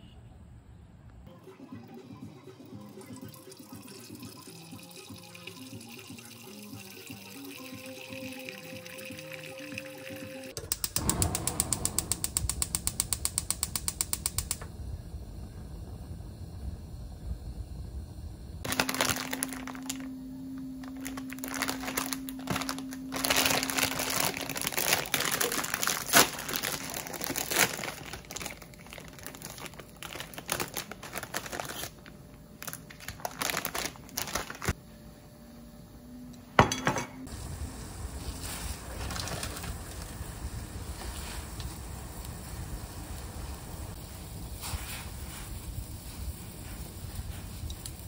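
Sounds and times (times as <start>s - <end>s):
steady hum: 9.8s - 44.6s
rustling and crinkling: 18.7s - 34.8s, 38.2s - 40.1s.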